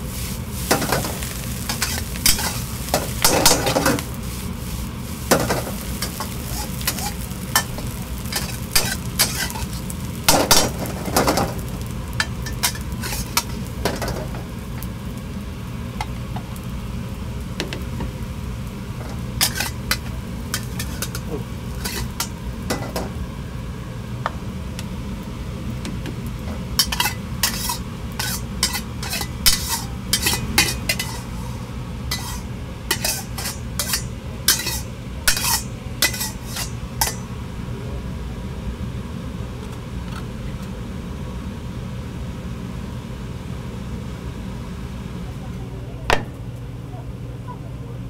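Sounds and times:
metal spatula scraping a wok: 0.0s - 11.6s, 12.2s - 13.7s, 19.4s - 22.3s, 26.8s - 37.2s.

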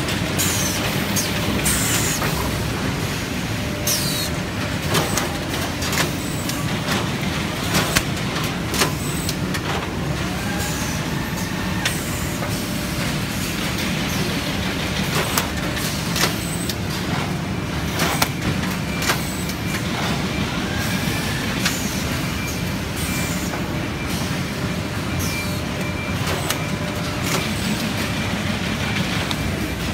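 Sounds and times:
mechanical din of machine line: 0.0s - 29.9s
high machine squeaks: 3.8s - 4.3s.

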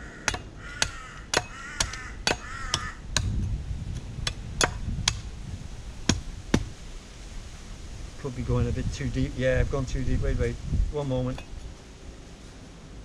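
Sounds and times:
bird calling: 0.0s - 3.0s
blade chopping coconut husk: 0.2s - 3.4s, 6.0s - 6.8s.

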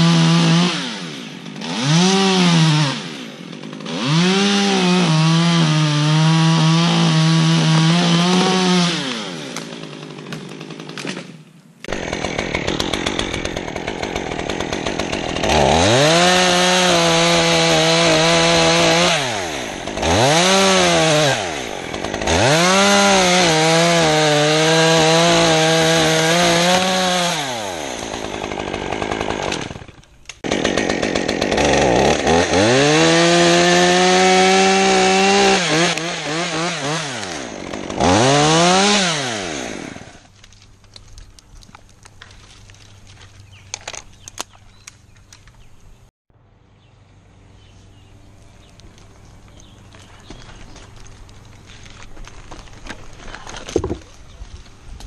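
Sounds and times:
chainsaw revving and idling: 0.0s - 11.1s, 11.8s - 40.3s.

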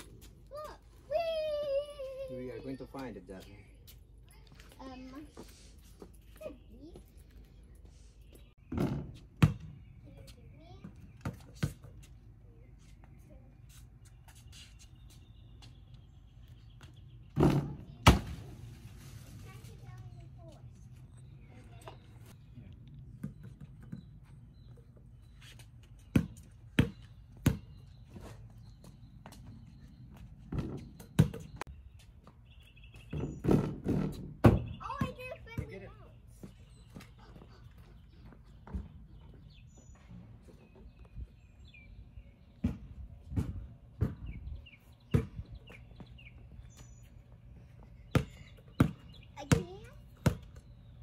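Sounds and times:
small birds chirping: 0.0s - 18.8s, 19.4s - 51.0s
basketball bouncing on bricks: 8.7s - 9.8s, 26.1s - 27.8s, 48.1s - 50.6s.

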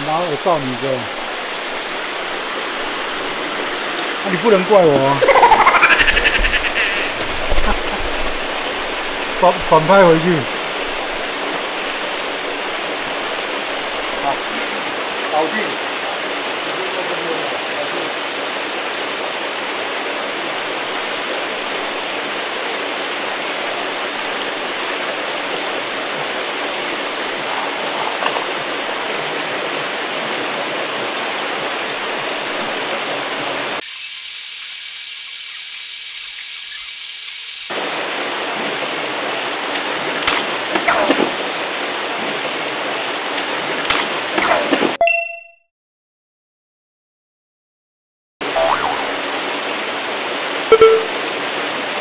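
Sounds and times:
pond aerators splashing water: 37.7s - 45.0s.

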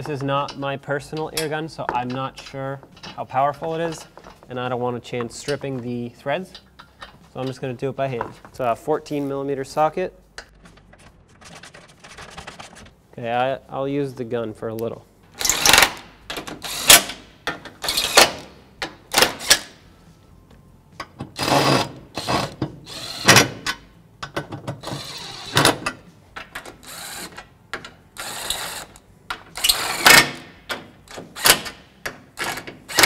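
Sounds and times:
cordless impact wrench bursts: 15.4s - 17.2s, 21.4s - 23.6s, 26.8s - 27.4s, 29.6s - 30.4s, 31.2s - 31.8s, 32.4s - 33.0s.

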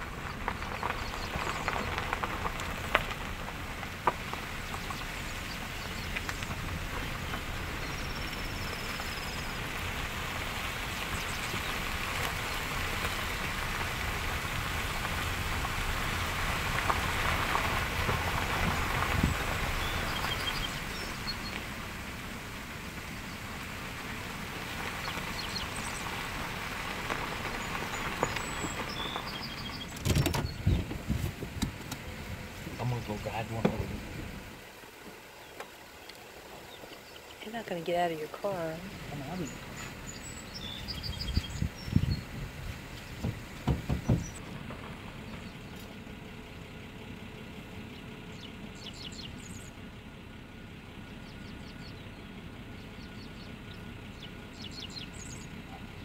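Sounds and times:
hissing rush of outdoor ambience: 0.0s - 30.6s, 31.3s - 56.0s
sharp knocks: 43.2s - 44.4s.

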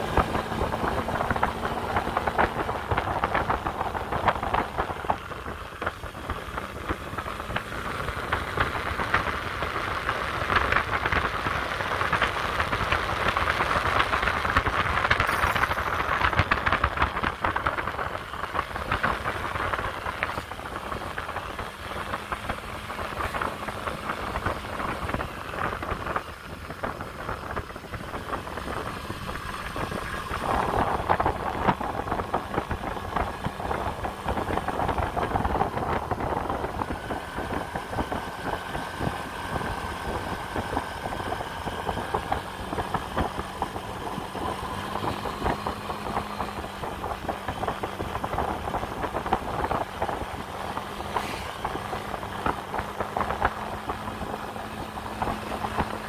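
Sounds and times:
scooter engine running: 0.0s - 56.0s.

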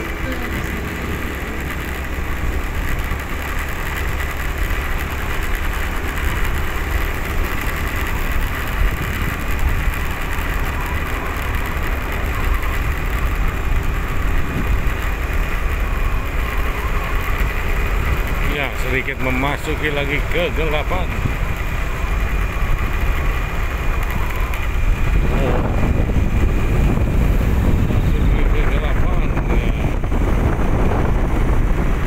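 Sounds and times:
vehicle driving on road: 0.0s - 32.0s.

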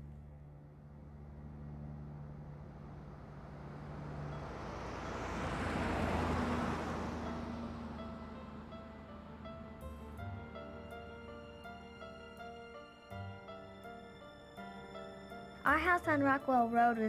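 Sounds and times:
car passing by: 0.1s - 12.6s.

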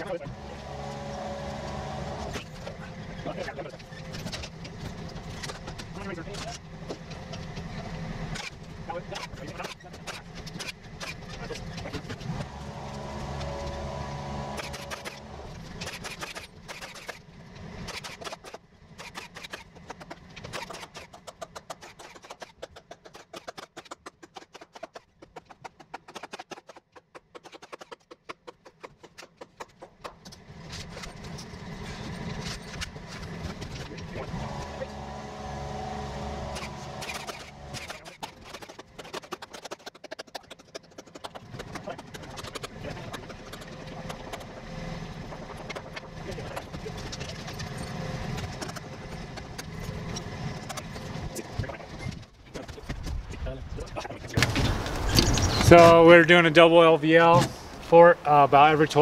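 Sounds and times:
engine running: 0.0s - 21.1s, 30.0s - 39.8s, 40.4s - 52.8s
rapid clicking and rattling: 1.5s - 13.5s, 14.5s - 34.3s, 36.4s - 55.9s.

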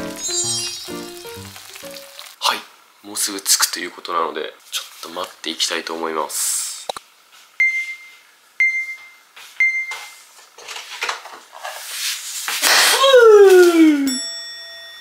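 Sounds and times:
electronic countdown beeps: 7.6s - 9.9s.

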